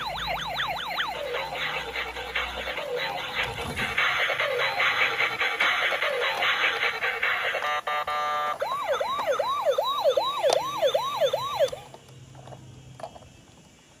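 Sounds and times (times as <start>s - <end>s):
toy siren wailing: 0.0s - 1.9s, 4.2s - 11.9s.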